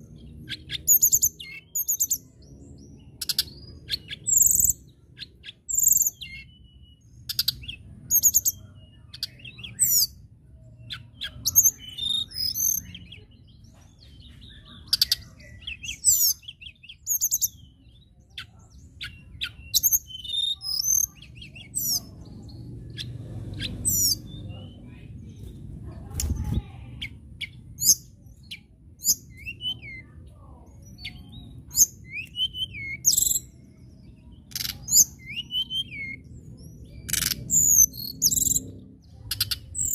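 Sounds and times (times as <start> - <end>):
bird twittering and whistling: 0.0 - 10.2, 10.8 - 24.8, 26.1 - 39.9
faint low rumble: 21.0 - 31.7.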